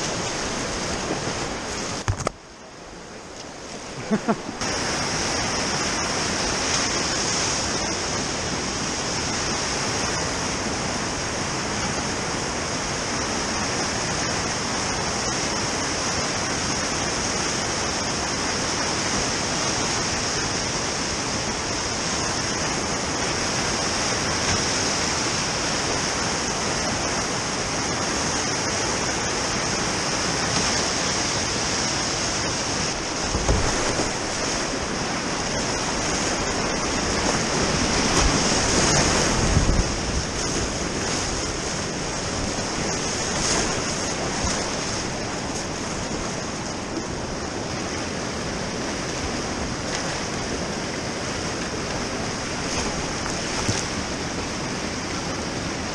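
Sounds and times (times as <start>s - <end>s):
whitewater river rushing: 0.0s - 55.9s
low thump: 33.3s - 34.2s.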